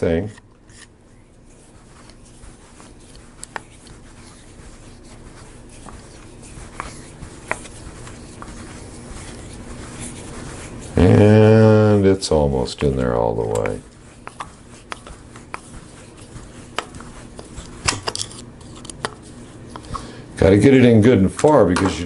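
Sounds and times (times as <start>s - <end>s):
screwdriver scraping: 16.8s - 19.2s.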